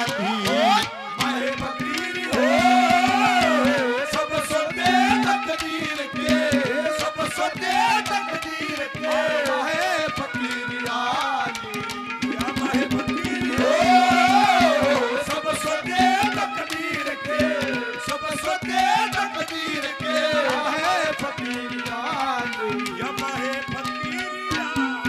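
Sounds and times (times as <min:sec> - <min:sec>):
hand drum beating fast: 0:00.0 - 0:09.6, 0:11.5 - 0:16.5.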